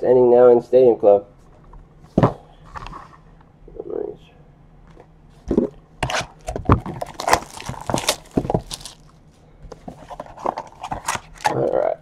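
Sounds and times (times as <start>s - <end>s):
cardboard boxes knocking and scraping: 2.1s - 3.0s, 5.4s - 9.0s.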